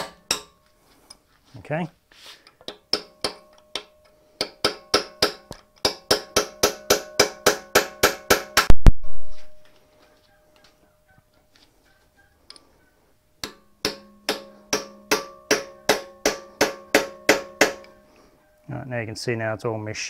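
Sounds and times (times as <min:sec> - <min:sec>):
hammer striking metal punch: 0:00.0 - 0:00.6, 0:02.7 - 0:08.9, 0:13.4 - 0:18.0.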